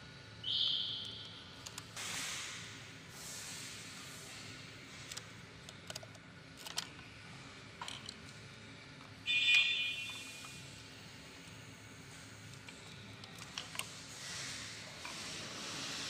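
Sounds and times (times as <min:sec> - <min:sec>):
screws and plastic cover rattling: 0:05.7 - 0:07.0, 0:07.8 - 0:08.2.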